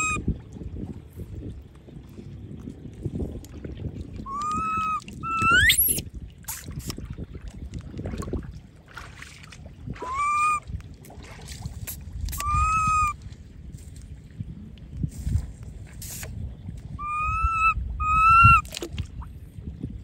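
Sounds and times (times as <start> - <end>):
baby monkey whimpering cries: 0.0 - 0.2, 4.3 - 6.0, 10.1 - 10.6, 12.4 - 13.1, 17.0 - 18.6
splashing and rustling in water: 0.2 - 12.5, 13.1 - 17.0, 18.6 - 19.9.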